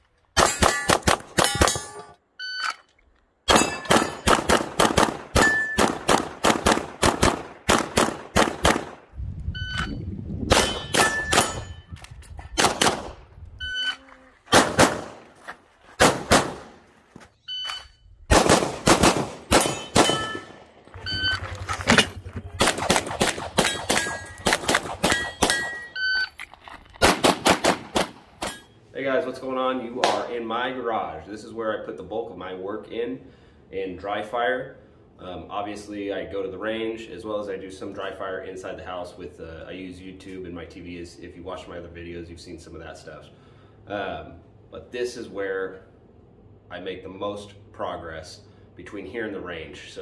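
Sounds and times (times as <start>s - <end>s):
pistol gunfire: 0.4s - 1.9s, 3.5s - 9.0s, 10.5s - 11.7s, 12.6s - 13.2s, 14.5s - 15.2s, 16.0s - 16.8s, 18.3s - 20.7s, 22.5s - 25.8s, 27.0s - 28.3s
steel targets ringing: 0.4s - 2.2s, 3.5s - 4.4s, 5.4s - 5.9s, 10.6s - 11.9s, 19.6s - 21.2s, 23.6s - 26.0s, 28.4s - 28.8s.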